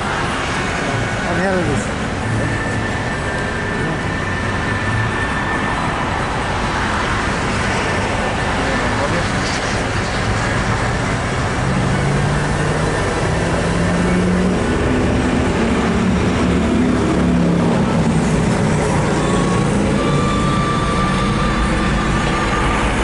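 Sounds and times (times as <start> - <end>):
diesel locomotive approaching: 0.0 - 23.0
road traffic rumble: 0.0 - 23.0
thin high tone: 18.9 - 23.0.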